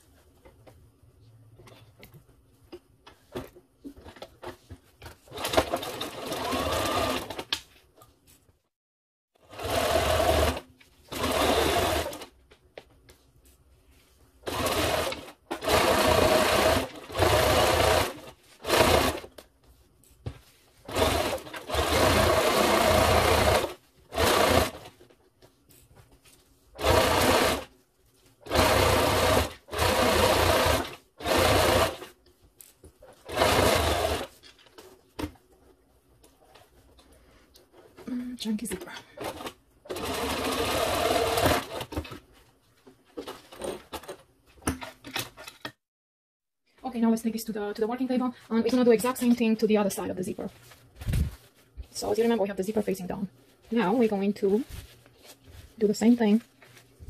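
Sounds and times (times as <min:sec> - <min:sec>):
sewing machine stitching: 0:05.3 - 0:07.6, 0:09.4 - 0:12.3, 0:14.4 - 0:19.3, 0:20.8 - 0:24.9, 0:26.8 - 0:27.7, 0:28.4 - 0:32.1, 0:33.1 - 0:34.4, 0:39.2 - 0:42.2.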